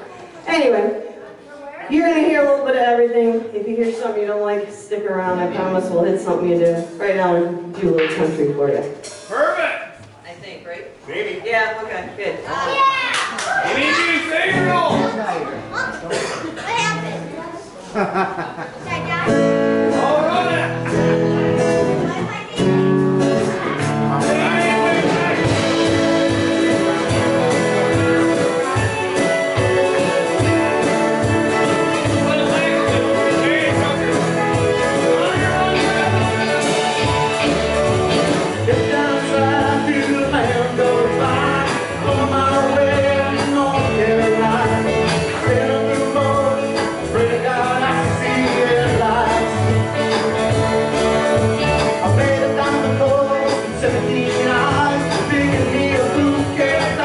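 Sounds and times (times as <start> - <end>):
drums: 1.9 - 11.2, 12.0 - 57.0
bass: 12.5 - 17.5, 18.7 - 57.0
electric guitars: 18.7 - 57.0
lead vocal singing: 24.2 - 50.4, 51.8 - 57.0.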